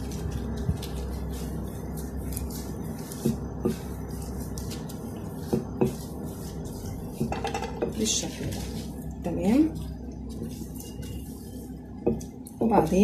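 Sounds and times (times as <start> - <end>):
low steady hum: 0.0 - 13.0
rolling pin swishing over dough: 0.0 - 13.0.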